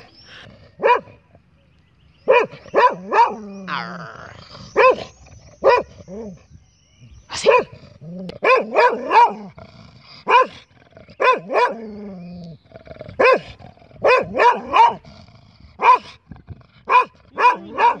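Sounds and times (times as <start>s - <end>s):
dog barking: 0.8s - 1.2s, 2.2s - 3.5s, 4.8s - 5.9s, 7.4s - 7.7s, 8.4s - 9.5s, 10.3s - 10.6s, 11.2s - 11.8s, 13.2s - 15.0s, 15.8s - 16.2s, 16.9s - 18.0s
dog growling: 3.4s - 6.4s, 7.7s - 18.0s.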